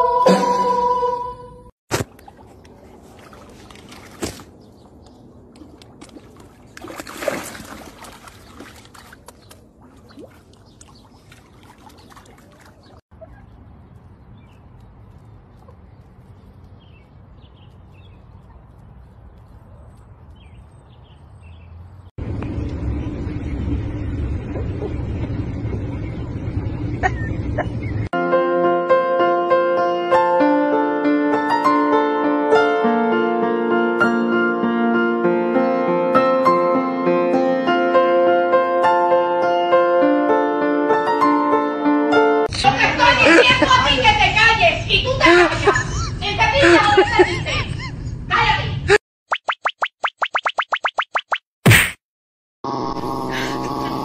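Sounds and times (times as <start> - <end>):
water lapping at rocky shore: 2.0 - 4.8, 5.5 - 13.0.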